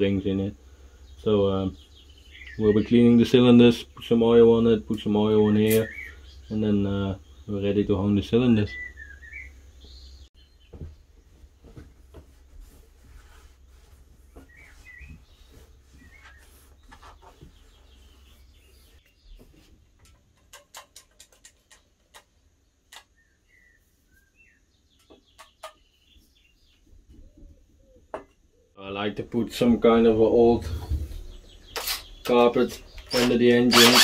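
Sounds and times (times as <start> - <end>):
faint bird chirps: 0.6 - 4.1, 4.7 - 11.0, 14.2 - 19.7, 21.4 - 28.8
cloth rubbing on metal: 11.3 - 19.7.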